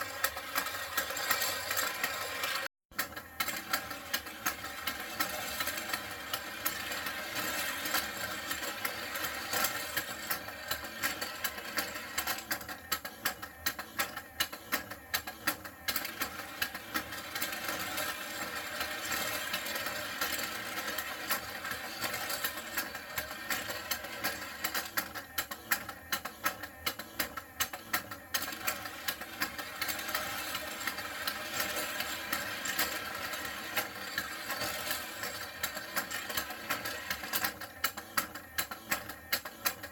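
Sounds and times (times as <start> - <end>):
small toy motor whirring: 0.0 - 39.9.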